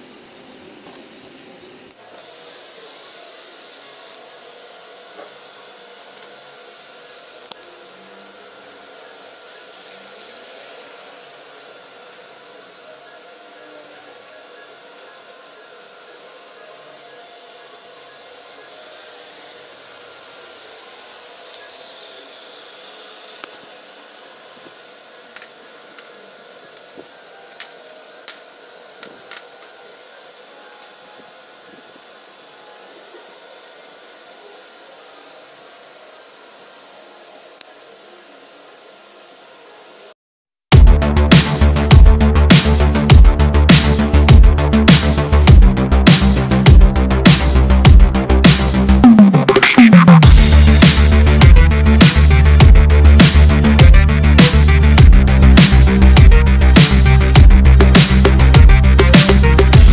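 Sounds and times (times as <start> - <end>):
steady whirring hiss: 0.0 - 40.2, 41.0 - 59.9
tripod clicks: 27.6 - 28.4, 29.0 - 29.7.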